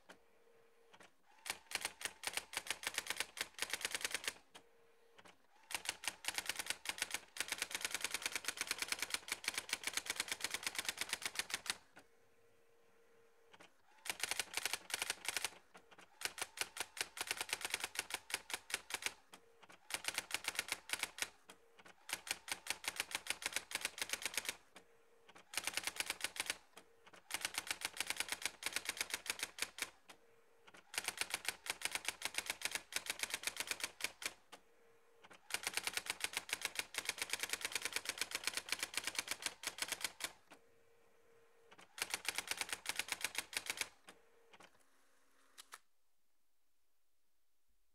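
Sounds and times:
typewriter print clicks: 0.9s - 4.5s, 5.2s - 11.8s, 13.5s - 30.1s, 30.7s - 34.5s, 35.2s - 40.4s, 41.7s - 44.7s
typewriter brief hum: 41.7s - 44.0s.

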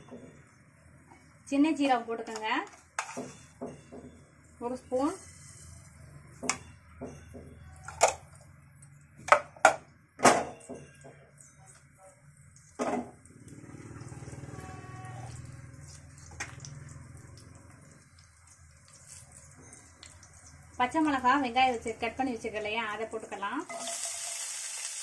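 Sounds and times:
frying pan and utensils clanking: 23.7s - 24.6s.

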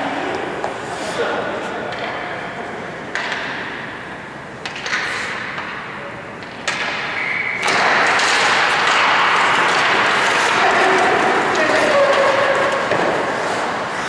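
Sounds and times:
hockey sticks clacking on ice: 1.7s - 14.0s
skate blades scraping ice: 7.6s - 14.0s.

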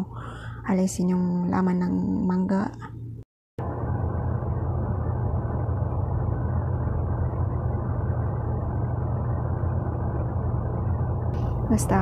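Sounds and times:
steady low rumble: 2.8s - 12.0s.

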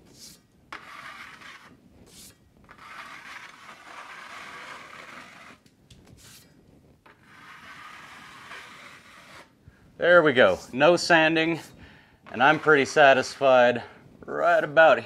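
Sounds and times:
taping knife scraping: 0.0s - 9.6s, 11.4s - 13.6s.

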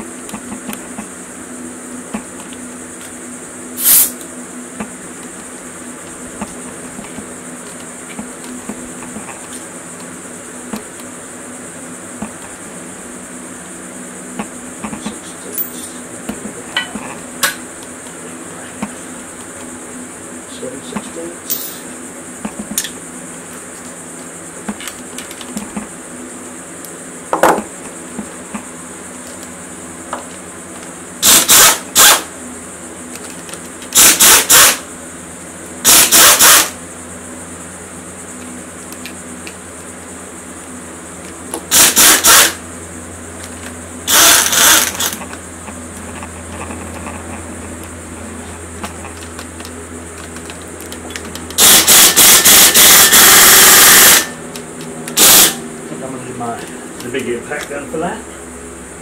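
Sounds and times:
pneumatic impact wrench hammering: 3.8s - 4.2s, 31.2s - 32.3s, 33.9s - 34.9s, 35.8s - 36.8s, 41.6s - 42.6s, 44.0s - 45.3s, 51.1s - 54.4s, 55.1s - 55.6s.

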